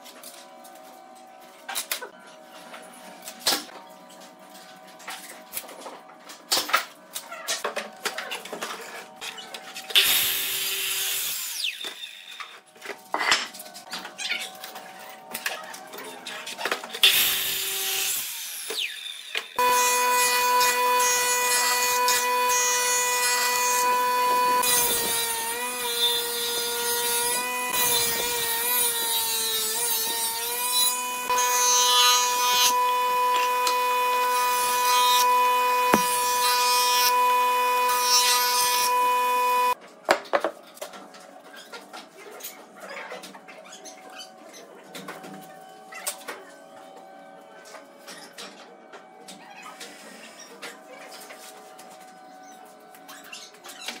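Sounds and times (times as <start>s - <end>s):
miter saw cutting: 17.0s - 39.8s
jointer whining: 19.6s - 28.8s, 29.6s - 39.8s
wood planing: 19.6s - 39.8s.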